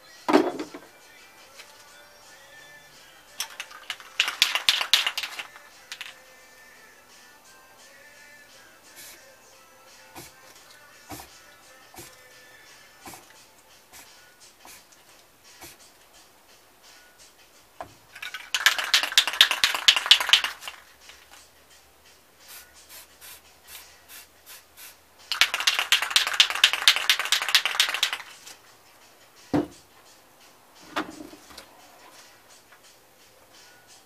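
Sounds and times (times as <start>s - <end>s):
spray paint can hissing: 3.4s - 6.1s, 9.0s - 9.2s, 10.2s - 10.4s, 11.1s - 11.3s, 13.0s - 13.3s, 13.9s - 14.9s, 15.6s - 15.8s, 18.3s - 21.4s, 22.4s - 28.4s
plate knocking on canvas: 29.6s - 29.8s.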